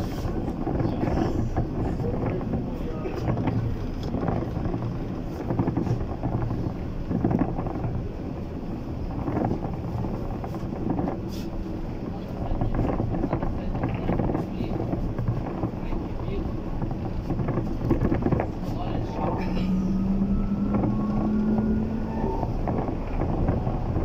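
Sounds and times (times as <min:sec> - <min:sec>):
tyres rumbling on road: 0:00.0 - 0:24.0.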